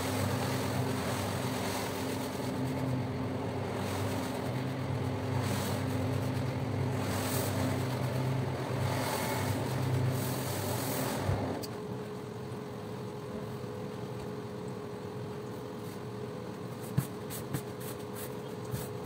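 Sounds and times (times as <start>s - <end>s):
brush scrubbing wet rug: 0.0s - 11.6s, 16.8s - 19.0s
floor scrubber motor hum: 0.0s - 11.7s.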